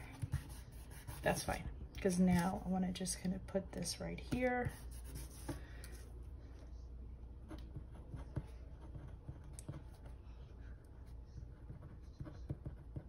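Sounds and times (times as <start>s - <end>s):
pen scratching on paper: 0.1s - 1.5s, 4.7s - 5.6s, 11.0s - 13.0s.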